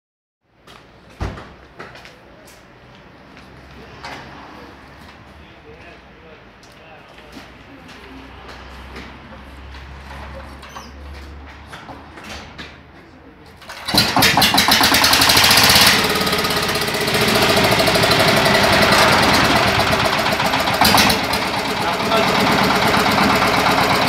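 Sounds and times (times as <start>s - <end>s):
diesel engine running: 13.7s - 24.0s.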